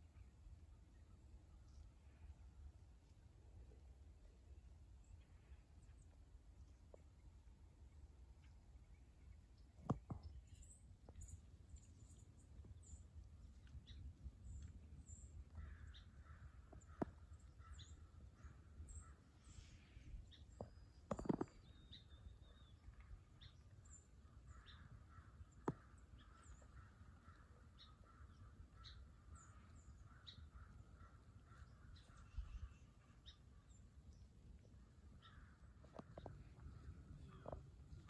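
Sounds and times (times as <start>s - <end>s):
small birds chirping: 5.0s - 38.0s
rough lower bird calls: 13.8s - 33.7s, 34.8s - 38.0s.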